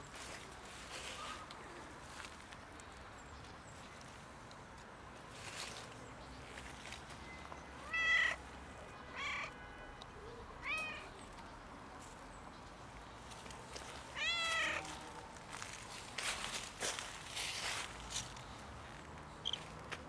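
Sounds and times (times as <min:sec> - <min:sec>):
cat meowing: 0:07.8 - 0:08.4, 0:10.6 - 0:11.1, 0:14.2 - 0:14.9.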